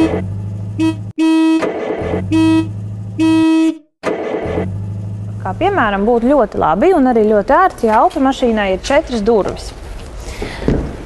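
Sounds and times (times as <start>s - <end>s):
car horn honking: 0.0s - 4.8s
low steady hum: 4.4s - 10.2s.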